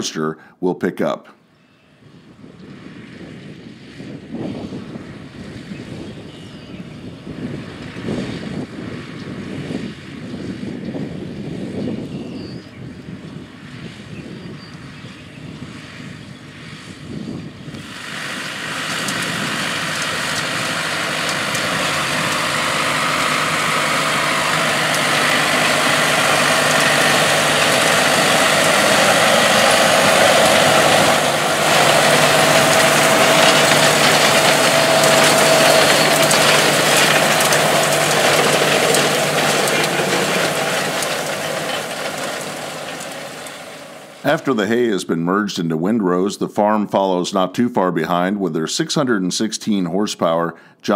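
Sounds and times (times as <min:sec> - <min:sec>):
tractor engine hum: 0:02.0 - 0:45.1
hay rake rushing noise: 0:17.8 - 0:44.7.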